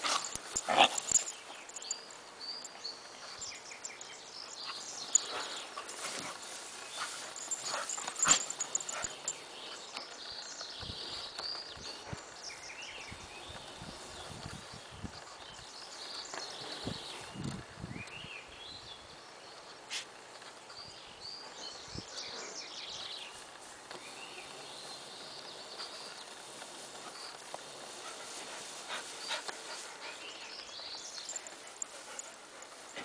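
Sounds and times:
rustling in cut grass: 0.0 - 18.0, 21.4 - 33.0
dogs panting: 3.3 - 10.2, 26.7 - 33.0.

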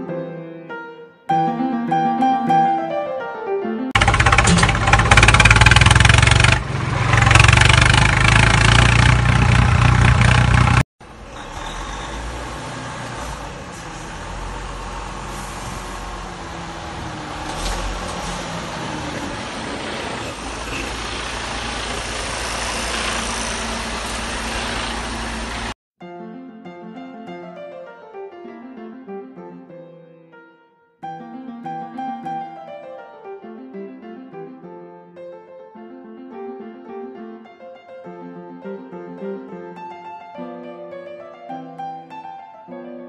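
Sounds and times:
vehicle engine running: 4.0 - 25.8.

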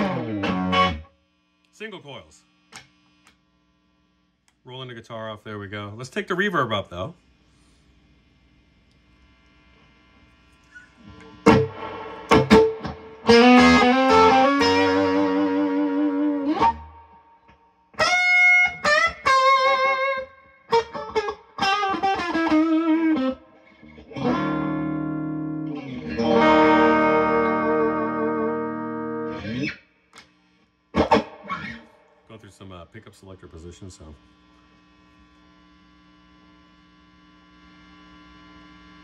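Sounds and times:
electric guitar with reverb: 0.0 - 1.1, 10.7 - 29.8, 30.9 - 32.4.

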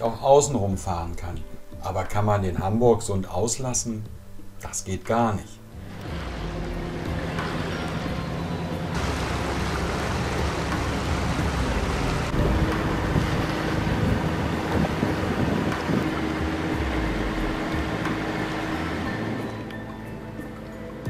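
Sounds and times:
steady low hum: 5.6 - 20.6
water washing past hull: 5.8 - 19.6
wind buffeting microphone: 6.0 - 19.5.

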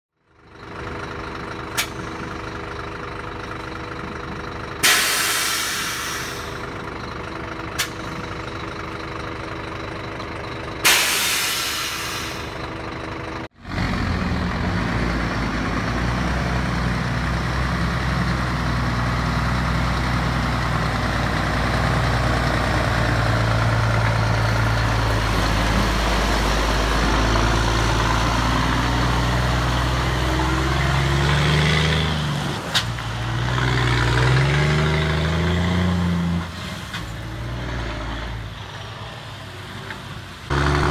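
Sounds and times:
diesel truck engine idling: 0.2 - 31.1
truck driving past: 0.3 - 40.9.

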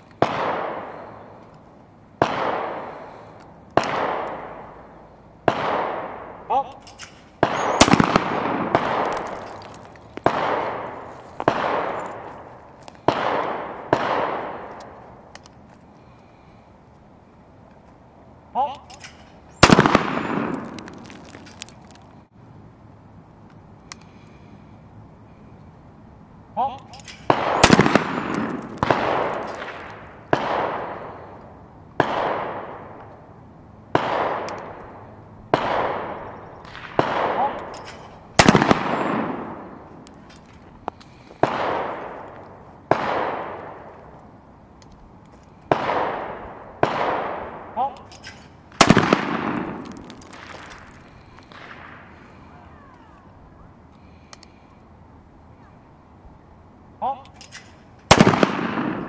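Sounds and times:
shotgun shots with rolling echo: 0.2 - 1.4, 2.2 - 15.3, 19.6 - 21.4, 27.2 - 33.1, 33.9 - 40.0, 41.1 - 44.2, 45.6 - 47.9, 48.7 - 52.5, 58.1 - 59.0.

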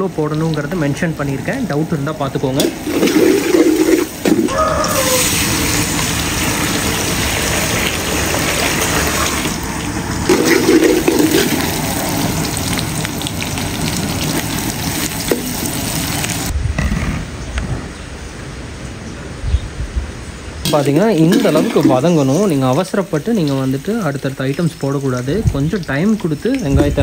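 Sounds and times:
metal skimmer stirring pot: 2.6 - 12.8, 20.7 - 23.7
onions sizzling in oil: 2.6 - 16.5, 20.7 - 27.0.

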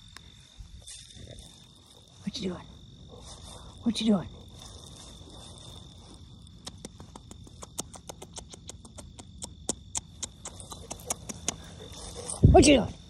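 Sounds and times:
crickets droning: 0.0 - 13.0
sharp clicks: 6.6 - 11.8.

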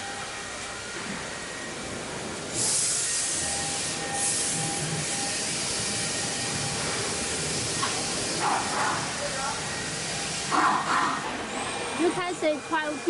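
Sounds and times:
compressed air hiss: 2.5 - 9.2.

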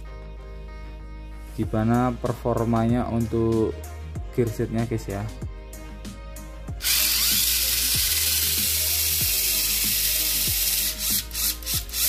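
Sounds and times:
small electric motor whirring: 6.8 - 12.0.

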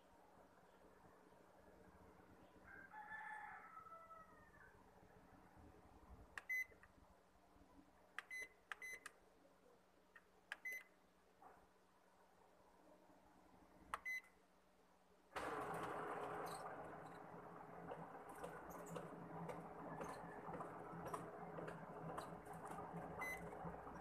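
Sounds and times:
keypad beeps: 6.4 - 6.8, 8.2 - 9.1, 10.6 - 10.9, 14.0 - 14.3, 23.2 - 23.5.

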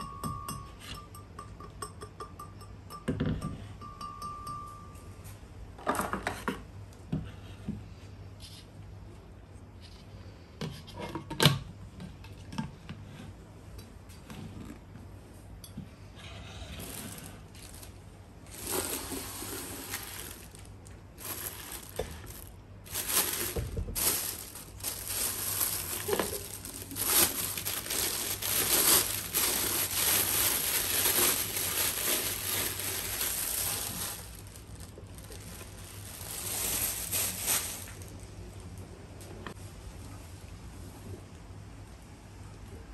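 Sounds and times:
plastic wrapping crinkling: 16.8 - 38.4.

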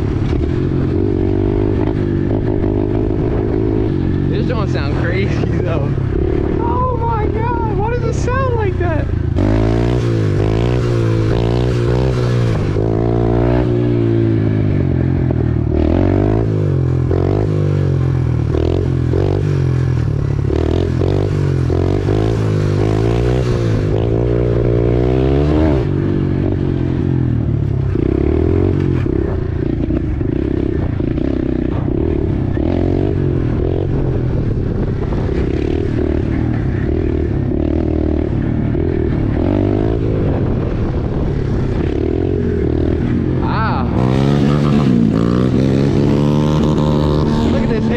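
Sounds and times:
dirt bike engine revving: 0.0 - 47.9.

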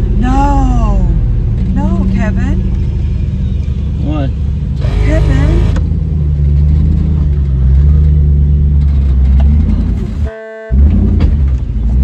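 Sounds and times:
car engine running: 0.0 - 12.0
short horn-like tone: 10.2 - 10.9.

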